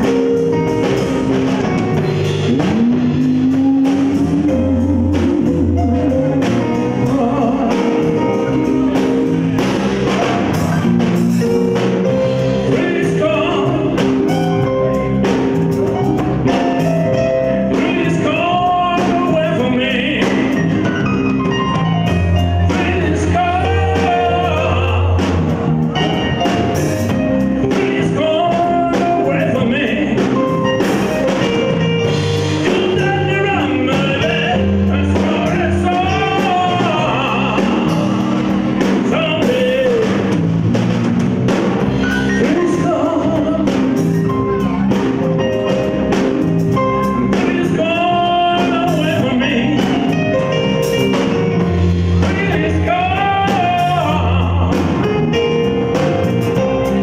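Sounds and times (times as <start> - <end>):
drum kit: 0.0 - 57.0
electric bass: 0.0 - 57.0
electric guitar: 0.0 - 57.0
man singing into a microphone: 2.3 - 9.3, 12.6 - 15.0, 17.7 - 21.0, 22.1 - 26.1, 27.6 - 30.8, 31.4 - 40.5, 42.2 - 44.6, 46.8 - 50.8, 52.2 - 55.6.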